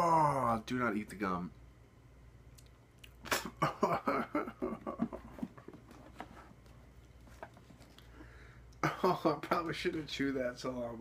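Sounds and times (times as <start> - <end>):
man laughing: 3.3 - 5.5, 8.8 - 9.8.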